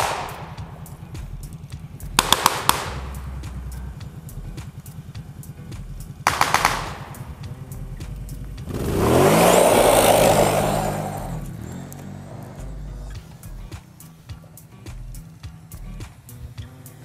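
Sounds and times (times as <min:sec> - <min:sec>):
gunfire burst: 0:00.0 - 0:01.5, 0:02.2 - 0:04.7, 0:06.2 - 0:11.5
quad engine revving: 0:00.0 - 0:17.0
tyres throwing gravel: 0:05.7 - 0:14.1.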